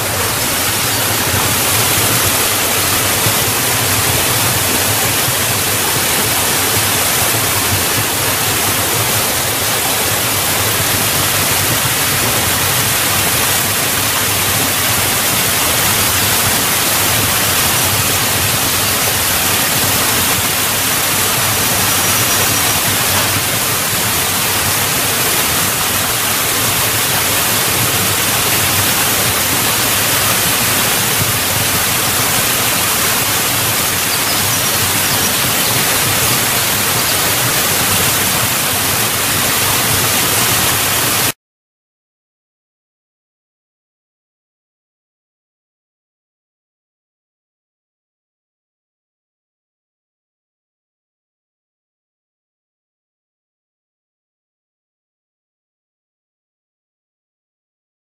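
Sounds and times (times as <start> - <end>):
waterfall rushing over rocks: 0.0 - 41.4.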